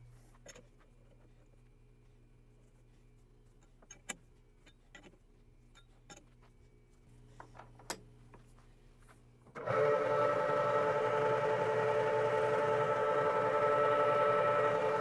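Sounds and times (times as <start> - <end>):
lathe gear whine: 9.6 - 15.0.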